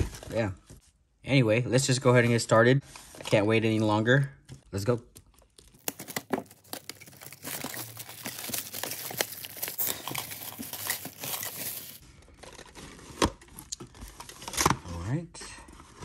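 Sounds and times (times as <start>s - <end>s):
plastic wrap tearing and crinkling: 5.6s - 13.4s.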